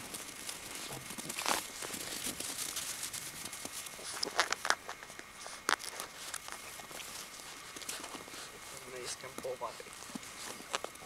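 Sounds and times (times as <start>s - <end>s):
footsteps crunching in snow: 0.0s - 11.0s
puppy paws in snow: 0.0s - 11.0s.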